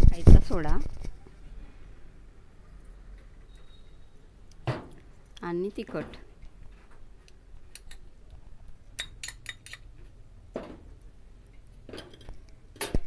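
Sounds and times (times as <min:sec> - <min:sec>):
steel spoon clinking on bowls: 0:09.0 - 0:09.8.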